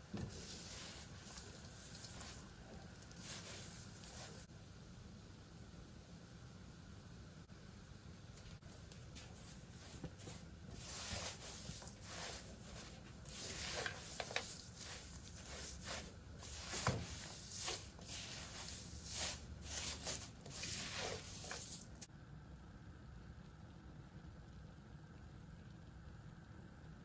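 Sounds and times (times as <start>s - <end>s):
spatula scraping in a wok: 0.0s - 4.5s, 9.3s - 22.1s.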